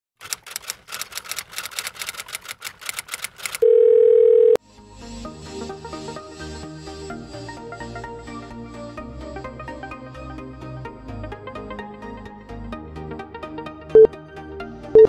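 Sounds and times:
rapid ticks: 0.2 - 3.6.

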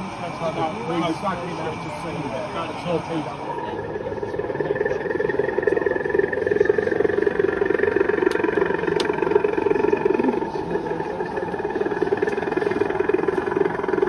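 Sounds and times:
model locomotive engine drone: 0.0 - 14.0.

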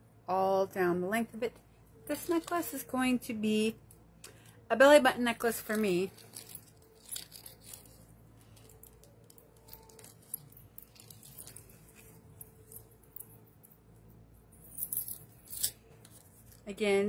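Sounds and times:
low steady hum: 0.0 - 17.0
small clicks and rustles: 5.6 - 13.8.

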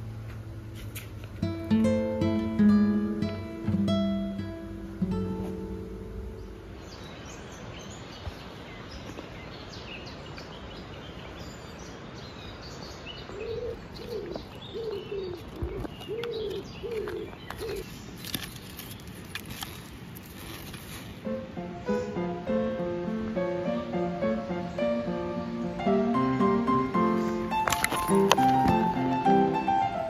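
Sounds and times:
outdoor background hush: 0.0 - 30.0
songbirds chirping: 0.0 - 30.0
pigeon cooing: 13.4 - 17.9.

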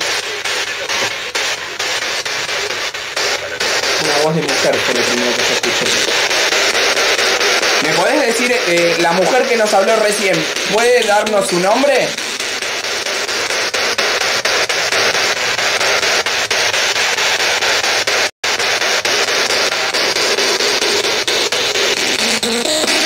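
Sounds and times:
radio static hiss: 0.0 - 23.0
rapid regular clicks: 0.0 - 23.0.

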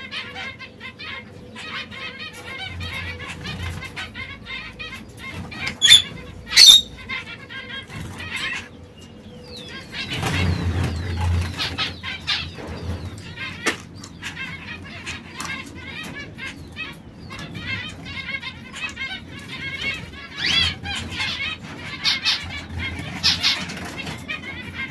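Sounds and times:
canaries chirping: 0.0 - 24.9.

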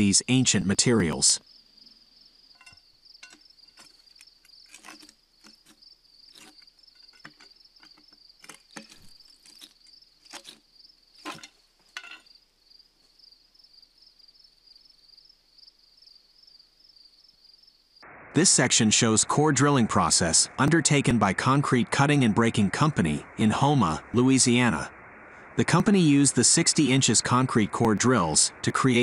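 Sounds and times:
crickets trilling: 0.0 - 18.0
steel pry bar knocking on stone: 2.6 - 4.0, 6.4 - 8.1, 11.2 - 12.3.

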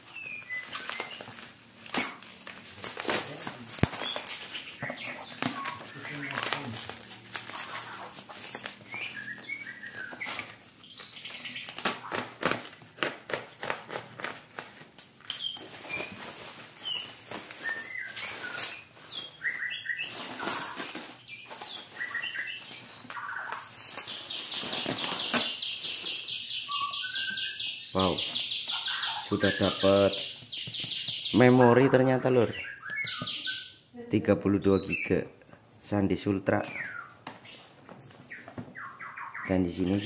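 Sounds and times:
small birds chirping: 0.0 - 12.7, 15.2 - 40.0
bubble wrap crinkling: 0.0 - 26.2.

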